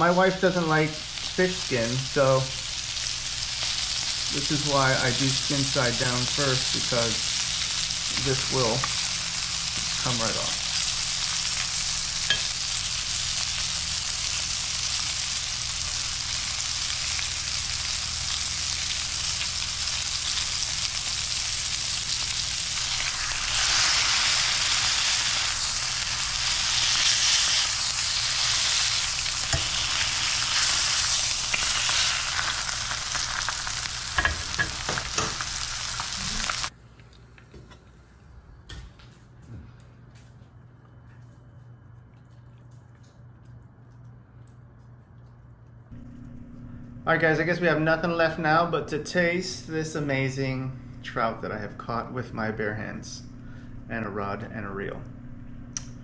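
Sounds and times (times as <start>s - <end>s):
fish frying in hot oil: 1.2s - 36.7s.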